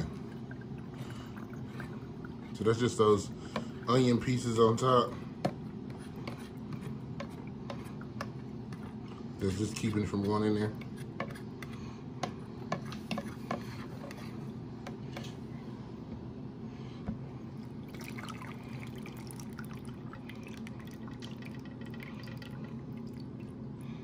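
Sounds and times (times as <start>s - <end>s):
juices trickling and dripping: 0.0s - 5.8s, 17.6s - 24.0s.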